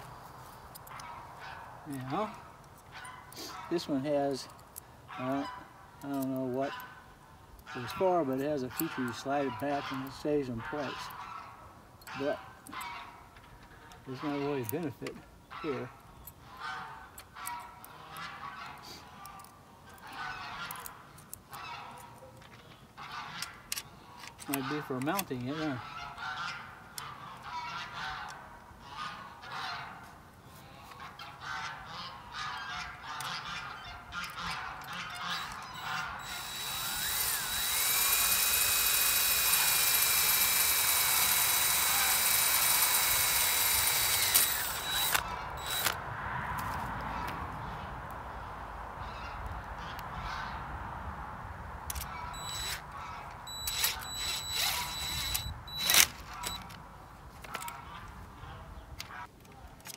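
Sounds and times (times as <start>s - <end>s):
geese honking: 14.1s - 14.6s, 20.0s - 22.1s, 24.4s - 45.9s
sharp clicks: 34.2s - 46.0s, 51.9s - 56.8s
cordless drill whining: 35.2s - 46.0s, 51.9s - 52.8s, 53.4s - 56.7s.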